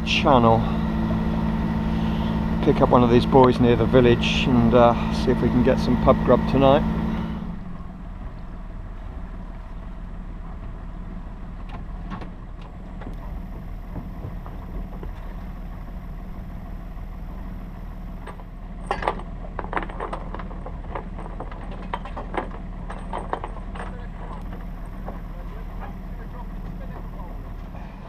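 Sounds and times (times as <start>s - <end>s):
boat engine humming: 0.0s - 28.0s
knocks and clicks of gear: 11.6s - 17.5s, 18.1s - 27.9s.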